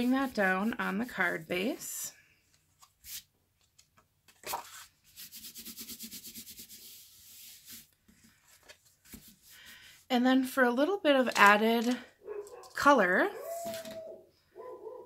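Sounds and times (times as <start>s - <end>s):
paper rustles and taps: 3.6s - 4.8s, 8.1s - 9.4s
hands rubbing on paper: 4.4s - 7.9s.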